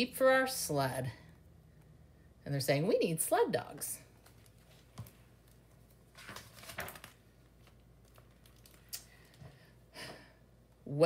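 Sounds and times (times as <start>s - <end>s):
paper pages turning: 4.2s - 9.0s.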